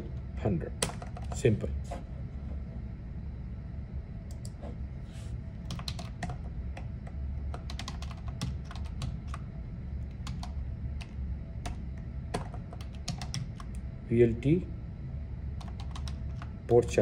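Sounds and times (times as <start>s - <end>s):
low hum: 0.0s - 17.0s
typing on a keyboard: 0.8s - 1.4s, 5.7s - 6.9s, 7.5s - 9.4s, 10.1s - 13.8s, 15.6s - 16.6s.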